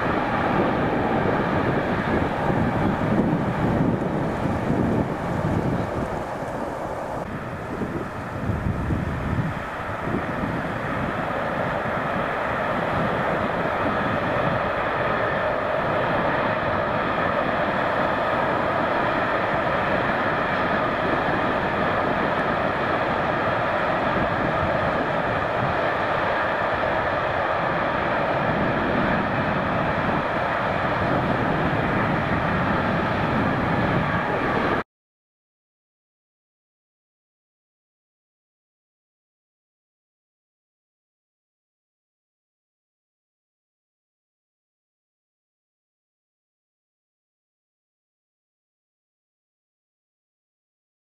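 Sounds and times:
distant train rumbling on bridge: 0.0 - 34.8.

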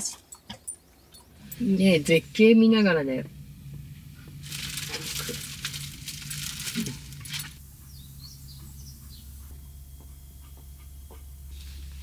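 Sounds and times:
low steady hum: 0.1 - 12.0
small bird chirping: 7.8 - 9.4.

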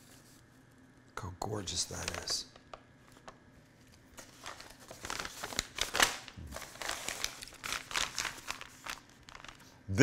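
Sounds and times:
wrapping paper rustling: 3.0 - 9.8.

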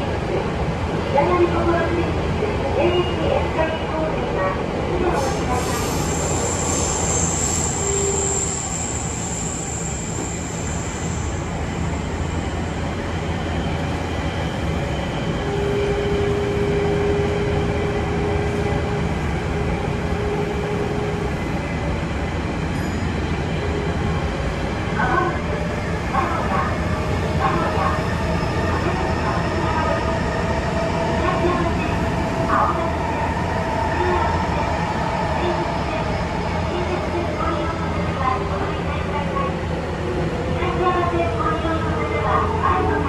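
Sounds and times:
subway wheels rumbling: 0.0 - 43.0.

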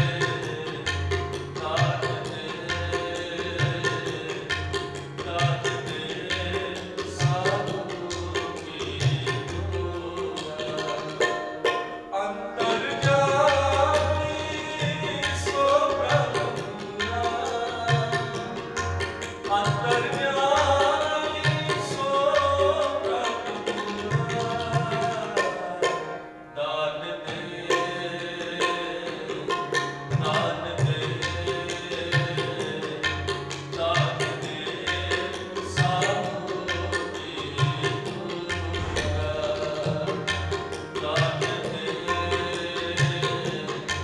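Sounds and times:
man singing: 0.0 - 11.4, 12.1 - 44.0
tabla drum strokes: 0.0 - 26.3, 27.3 - 44.0
harmonium: 0.0 - 44.0.

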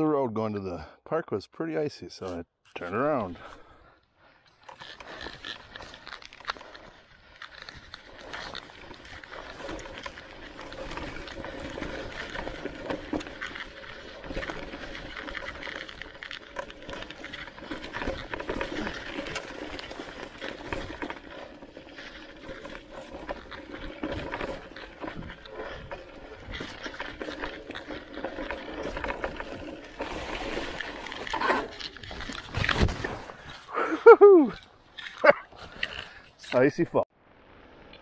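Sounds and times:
bike tyres rolling over dry leaves: 2.9 - 38.0
bike knocking and rattling: 4.4 - 33.7.

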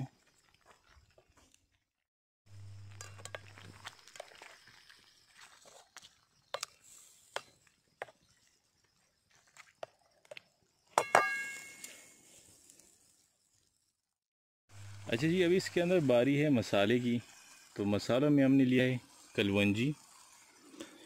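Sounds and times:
metal pan ringing: 11.0 - 11.9.

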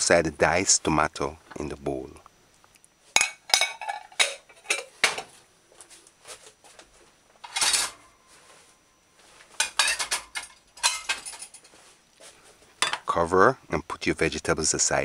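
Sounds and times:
ceramic bowls and utensils clinking: 3.2 - 5.3, 7.4 - 8.2, 9.5 - 11.7, 12.8 - 13.1
dishes clattering: 3.2 - 5.4, 7.4 - 8.1, 9.5 - 11.7, 12.8 - 13.1.

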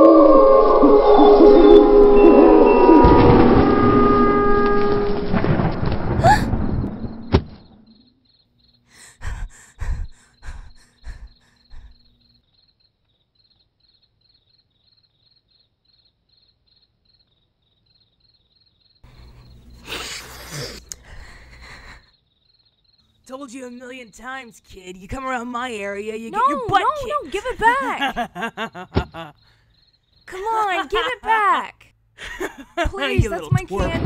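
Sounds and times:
crickets chirping: 0.3 - 31.7
dull thumps: 32.9 - 34.0.

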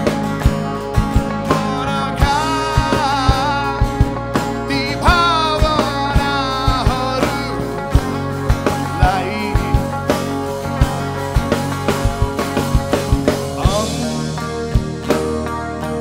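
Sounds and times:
drum kit steady beat: 0.0 - 16.0
electric bass: 0.0 - 16.0
electric guitar: 0.0 - 16.0
man singing long high notes: 1.5 - 4.0, 13.6 - 14.5.

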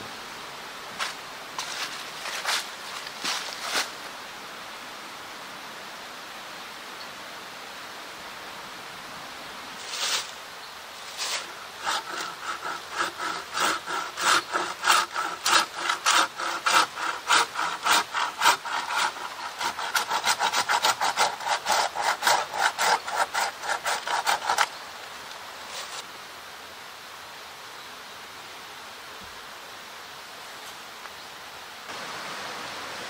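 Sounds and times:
hand saw cutting wood: 11.1 - 24.8, 25.7 - 26.0.

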